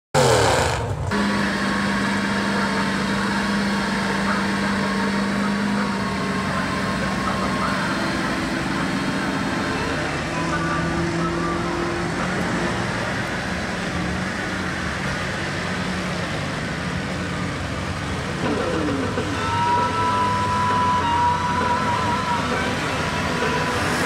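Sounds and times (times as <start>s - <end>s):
diesel trucks churning through mud: 0.1s - 24.0s
high whine: 18.4s - 24.0s.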